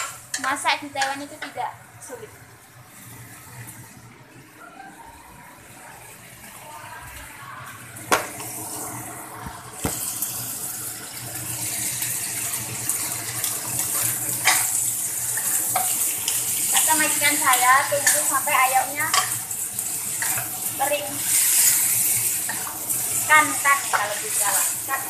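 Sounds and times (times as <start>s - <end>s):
food sizzling in oil: 0.0s - 25.0s.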